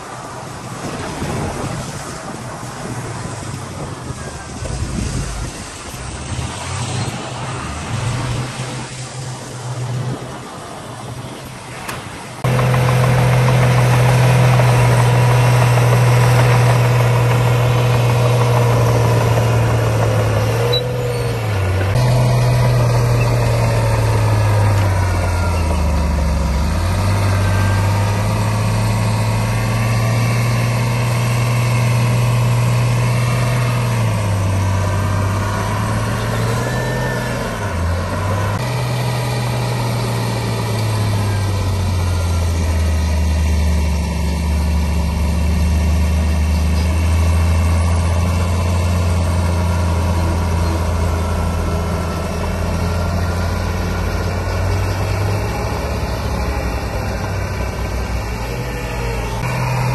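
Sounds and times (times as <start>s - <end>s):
heavy diesel engine running: 12.3s - 59.9s.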